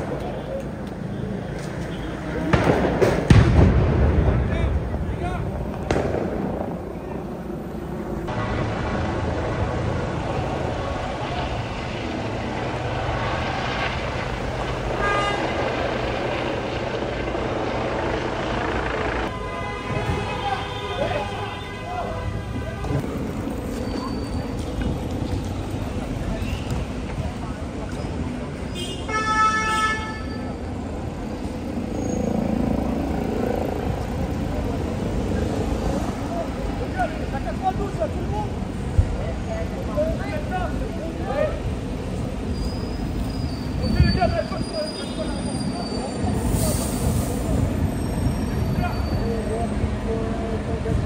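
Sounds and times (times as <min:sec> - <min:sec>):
vehicle engine low rumble: 0:00.0 - 0:19.3, 0:22.6 - 0:28.7
street noise: 0:00.0 - 0:51.0
loud engine drone: 0:08.1 - 0:19.3, 0:30.5 - 0:36.8.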